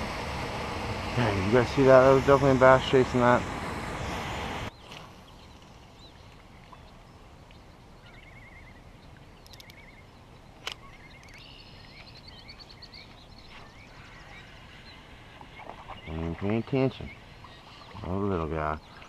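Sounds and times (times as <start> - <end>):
birds singing: 1.1 - 19.0
sharp click: 9.4 - 9.8, 10.6 - 11.4.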